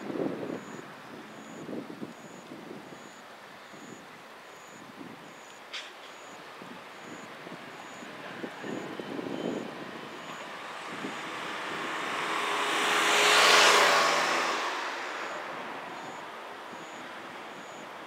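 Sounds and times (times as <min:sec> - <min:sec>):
road vehicle passing: 0:07.7 - 0:17.8.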